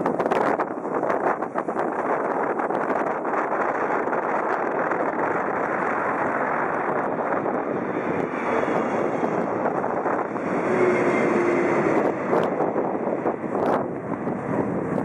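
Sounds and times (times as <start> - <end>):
airliner passing overhead: 3.5 - 15.0.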